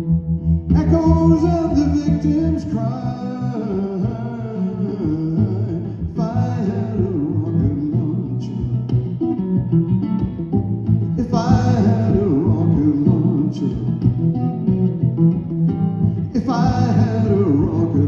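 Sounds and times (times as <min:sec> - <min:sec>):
guitar accompaniment: 0:00.0 - 0:18.0
person singing: 0:00.6 - 0:09.1, 0:11.2 - 0:14.2, 0:16.2 - 0:18.0.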